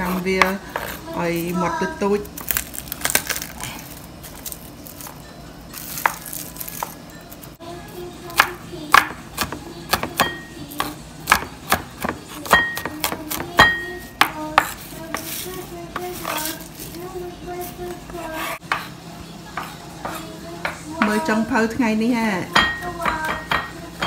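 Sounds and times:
knife chopping on wooden board: 8.4s - 15.4s.

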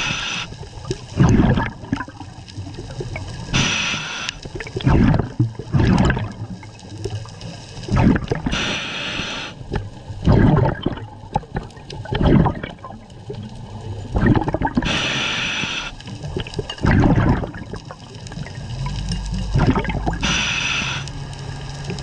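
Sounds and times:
hissing regulator inhale: 0.0s - 0.6s, 3.5s - 4.4s, 8.5s - 9.7s, 14.8s - 16.1s, 20.2s - 21.4s
gurgling exhaled bubbles: 0.0s - 22.0s.

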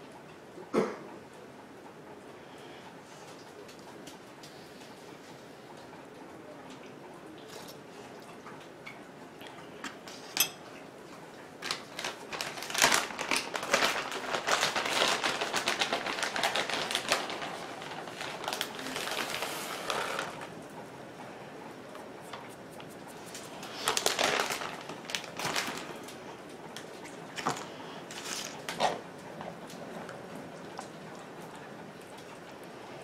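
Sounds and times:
plastic bag crinkling: 11.6s - 20.5s, 23.3s - 26.2s, 27.4s - 28.9s.

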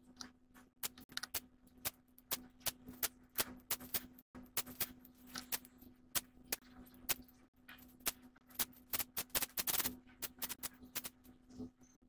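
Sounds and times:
low electrical hum: 0.0s - 12.0s
sharp clicks and scratchy taps: 0.1s - 11.7s.

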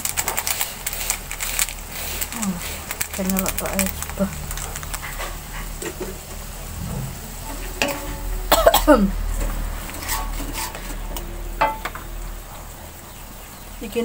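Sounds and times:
sauce sizzling: 0.3s - 13.8s
metal spatula scraping a wok: 6.8s - 8.5s, 9.2s - 11.8s.

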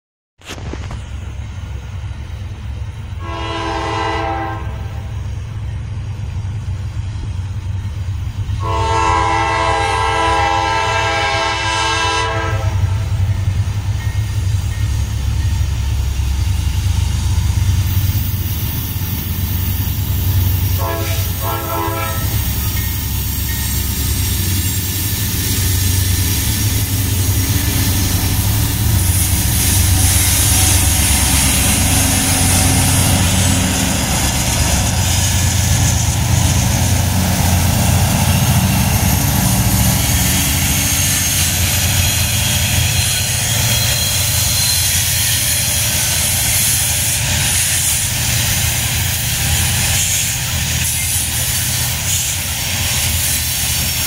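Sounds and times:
diesel engine rumble: 0.4s - 3.3s, 12.8s - 54.0s
wheel and rail noise: 0.4s - 54.0s
train air horn: 3.2s - 5.2s, 8.6s - 13.2s, 20.7s - 22.7s.

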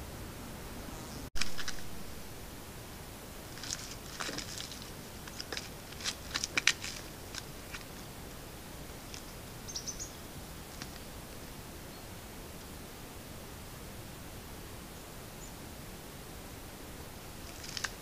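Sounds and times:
microphone hiss: 0.0s - 18.0s
high bird chirps: 9.6s - 10.2s.

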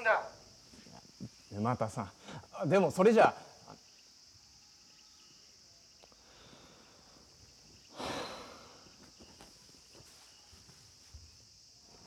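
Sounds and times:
high-pitched insect drone: 0.0s - 12.0s
man sighing heavily: 7.9s - 9.0s.

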